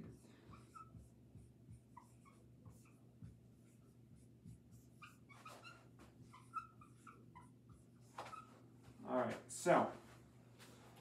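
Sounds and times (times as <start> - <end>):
marker squeaking on whiteboard: 0.0 - 8.8
low room hum: 0.0 - 11.0.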